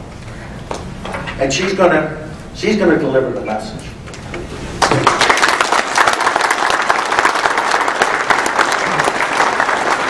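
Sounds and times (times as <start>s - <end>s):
audience applause: 4.8s - 10.0s.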